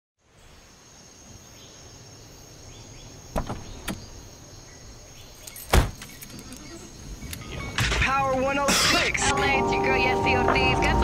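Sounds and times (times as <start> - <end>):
car door shutting: 3.3 - 4.1, 5.5 - 6.8.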